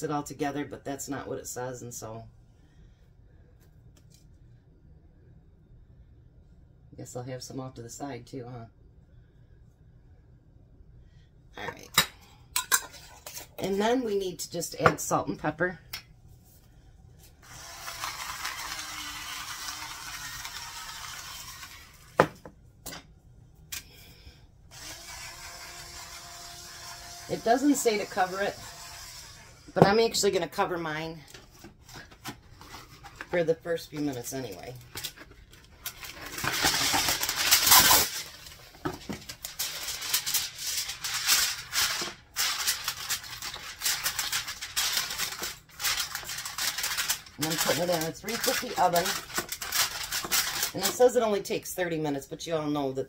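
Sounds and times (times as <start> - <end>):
aluminium foil crinkling: 17.3 - 22.2, 34.1 - 51.2
electric grinder whirring: 17.4 - 22.2, 24.7 - 29.8.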